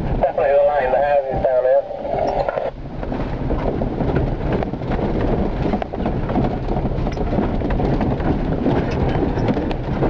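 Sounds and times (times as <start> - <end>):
engine and tyres rumbling: 0.0 - 10.0
vehicle body knocks and rattles: 2.8 - 10.0.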